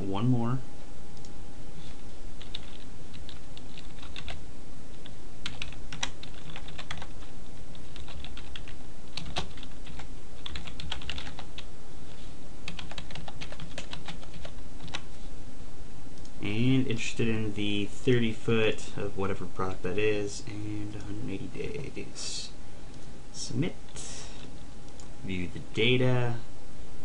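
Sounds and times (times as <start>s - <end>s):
typing on a computer keyboard: 2.4s - 4.4s, 5.4s - 7.2s, 7.9s - 11.6s, 12.7s - 15.0s.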